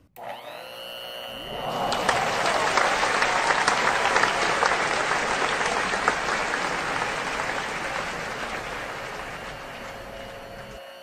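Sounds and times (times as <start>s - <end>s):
crowd applauding: 1.5s - 10.8s.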